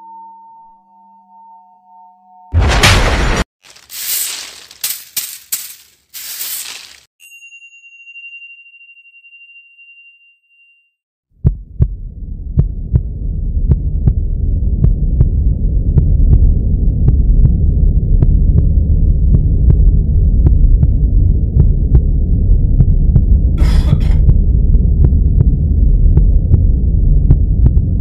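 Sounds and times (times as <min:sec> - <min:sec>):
low throbbing drone: 0:11.4 - 0:28.0.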